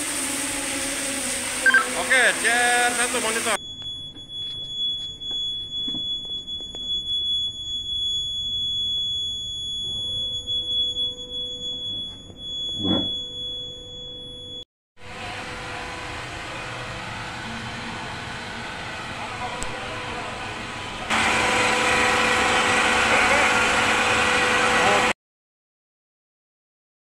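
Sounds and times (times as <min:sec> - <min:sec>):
pumps running: 0:00.0 - 0:03.6
alarm panel buzzer tone: 0:00.2 - 0:14.6.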